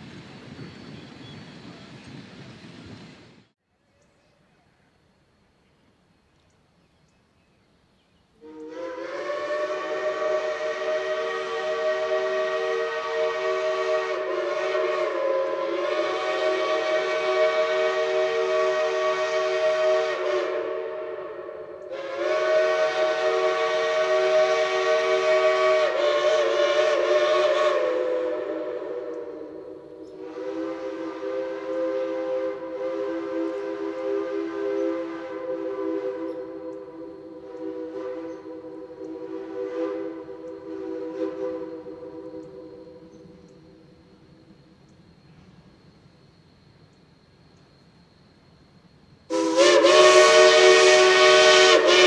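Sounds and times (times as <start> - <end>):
chime steam whistle blasts: 8.4 - 44.6, 49.0 - 52.0.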